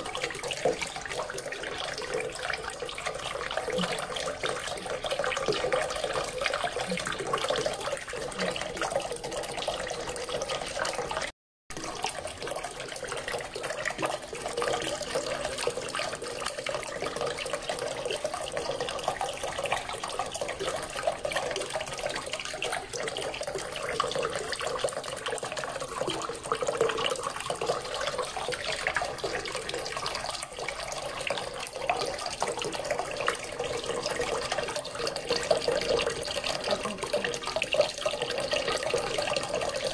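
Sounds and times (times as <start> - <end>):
fountain water splashing: 27.9 - 39.9.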